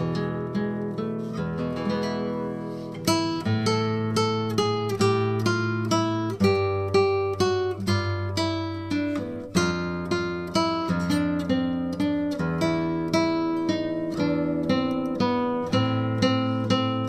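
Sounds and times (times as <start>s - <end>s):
acoustic guitar picking: 0.0s - 17.0s.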